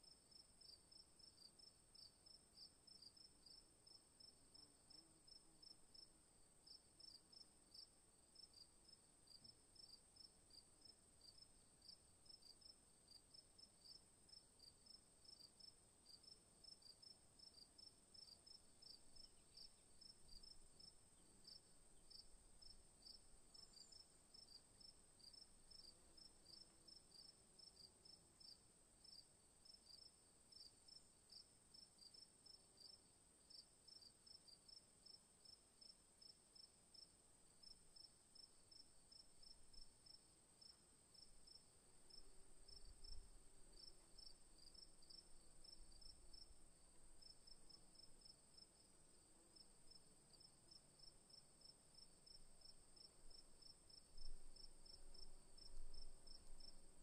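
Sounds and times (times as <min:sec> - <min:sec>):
crickets chirping: 0:00.0 - 0:57.0.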